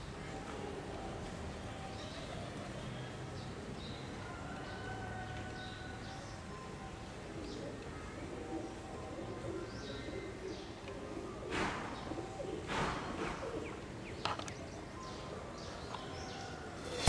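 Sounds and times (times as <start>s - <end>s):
birds chirping: 5.7s - 17.0s
brief rushing noises: 16.8s - 17.0s.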